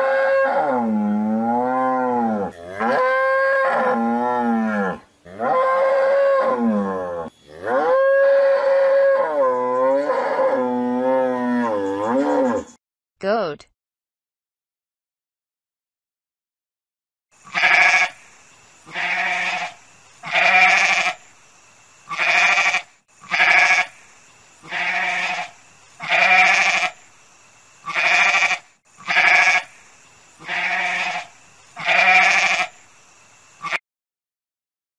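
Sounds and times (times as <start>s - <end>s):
goat bleating: 17.5s - 18.1s, 18.9s - 21.2s, 22.1s - 23.9s, 24.7s - 26.9s, 27.9s - 29.7s, 30.4s - 32.7s.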